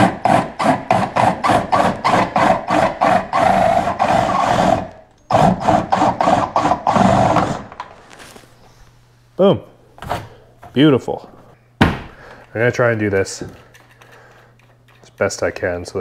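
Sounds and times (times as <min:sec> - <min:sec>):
drill scraping through plastic: 0:00.0 - 0:08.0.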